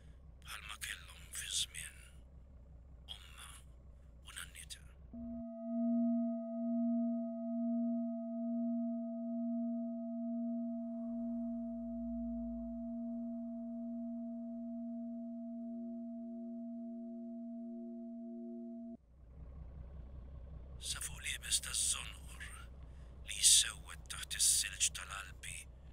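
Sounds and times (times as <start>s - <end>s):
steady pure tones drone: 5.2s - 19.0s
faint pulsing tone: 5.2s - 24.8s.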